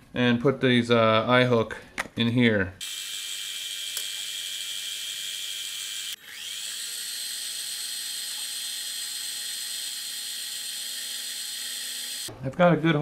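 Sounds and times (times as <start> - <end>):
lathe motor whine: 2.8 - 12.3.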